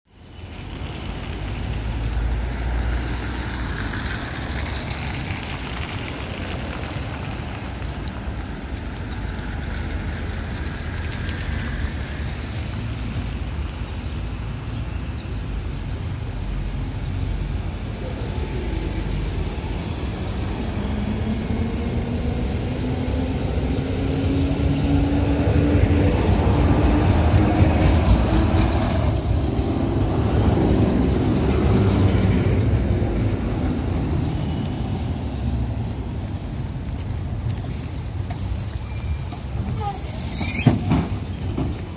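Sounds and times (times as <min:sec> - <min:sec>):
street noise: 0:00.1 - 0:41.9
tram whine: 0:17.4 - 0:35.9.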